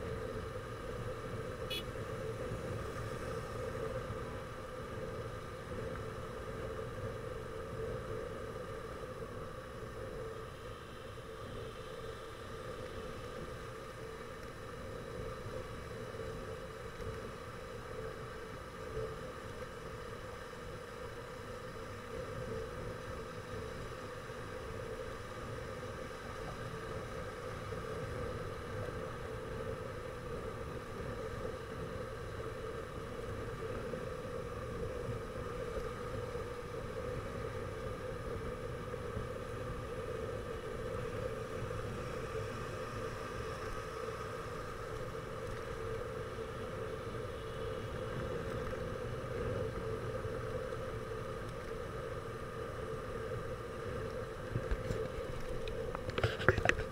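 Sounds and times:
motorcycle engine hum: 0.0 - 6.8
wind and road noise: 0.0 - 56.9.

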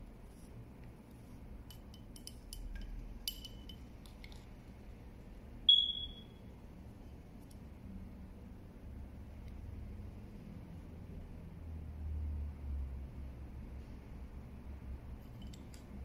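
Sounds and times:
high metallic ping: 5.7 - 6.4.

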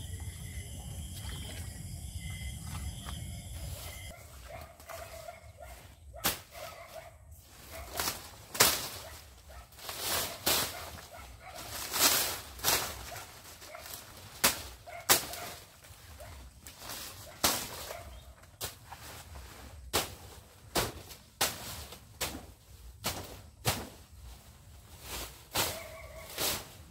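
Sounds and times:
leaves swishing: 3.6 - 16.1, 16.7 - 26.9
dry leaves rustling and snapping: 7.5 - 16.1.

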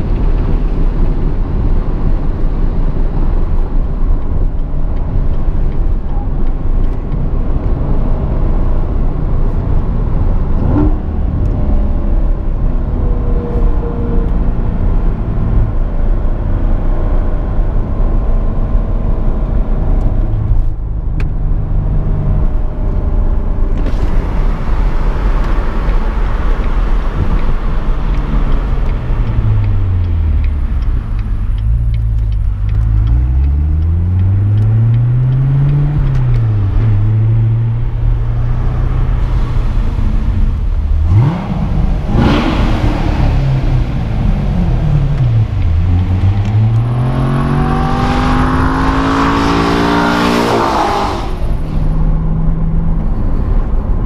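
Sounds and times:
car engine from inside cabin: 0.0 - 54.0.

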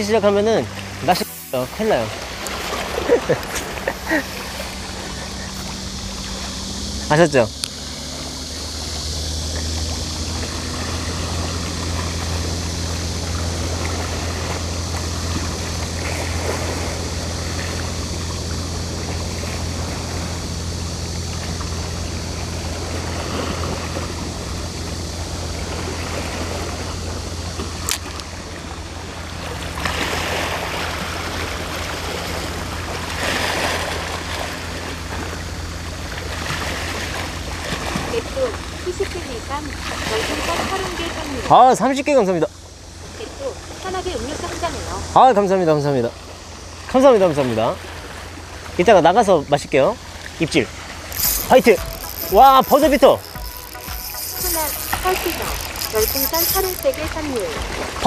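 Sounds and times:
steady low hum: 0.0 - 58.0
sharp click: 51.1 - 57.4.

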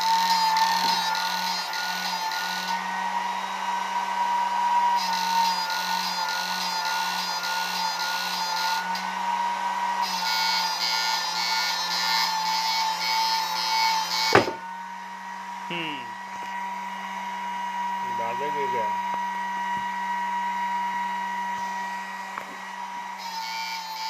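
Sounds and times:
cooling fan whirring: 0.0 - 5.4, 14.0 - 23.2.

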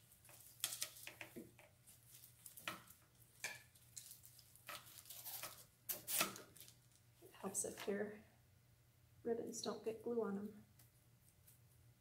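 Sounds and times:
ribbon scraping on scissor blade: 4.8 - 6.4.

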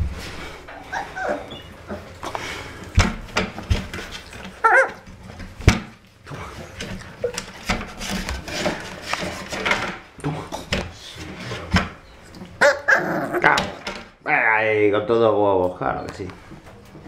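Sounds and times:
puppies scuffling: 0.0 - 14.1
puppy yips and grunts: 0.8 - 2.1, 4.6 - 5.0, 12.6 - 13.5
puppy whining: 0.8 - 2.2, 4.5 - 5.1, 12.0 - 13.6.

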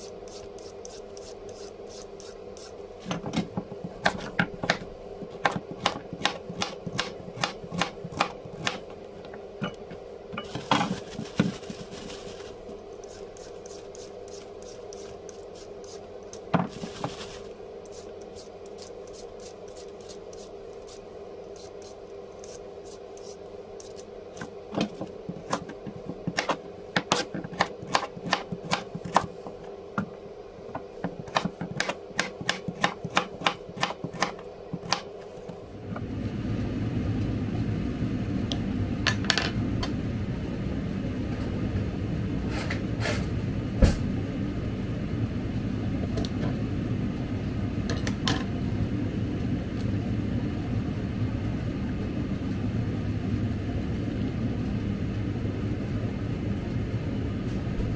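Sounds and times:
steady hum: 0.0 - 57.9.

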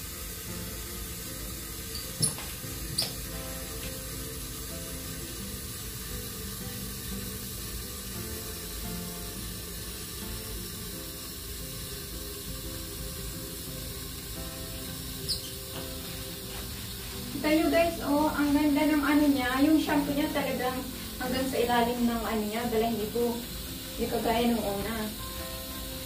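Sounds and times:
soft background music: 0.0 - 26.0
water running into bathtub: 0.0 - 26.0
high squeak: 1.9 - 3.3, 15.2 - 16.0.

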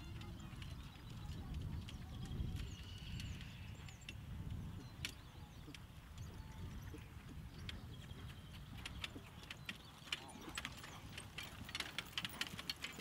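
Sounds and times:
birds chirping: 0.0 - 13.0
carriage rattling: 8.8 - 13.0.

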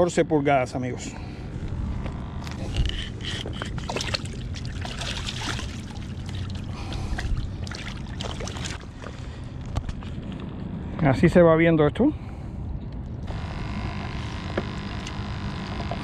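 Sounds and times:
fish flapping at water surface: 3.6 - 8.9
water splashing and dripping: 3.8 - 9.0.

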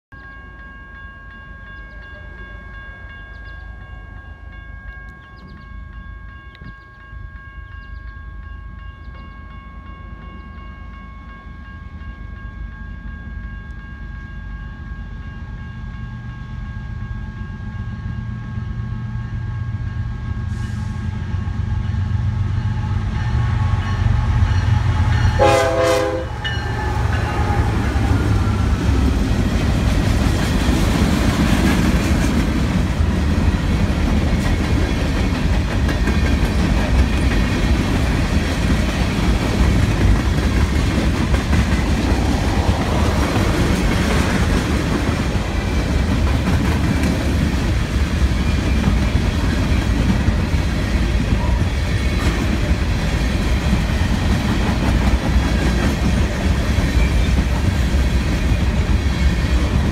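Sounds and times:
locomotive rumble: 13.6 - 59.9
train horn: 18.7 - 29.0, 51.2 - 52.3.

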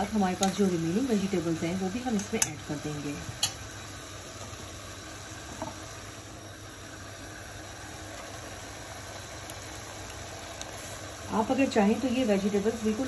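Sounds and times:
gas stove hum and hiss: 0.0 - 13.0.

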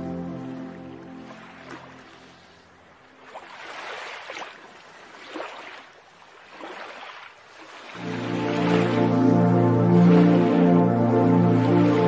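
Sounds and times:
sea waves breaking: 0.0 - 12.0.

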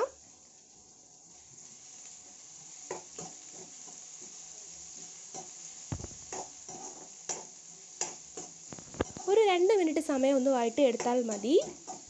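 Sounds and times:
onions sizzling in a wok: 0.0 - 12.0
spatula scraping a pan: 2.9 - 9.3.

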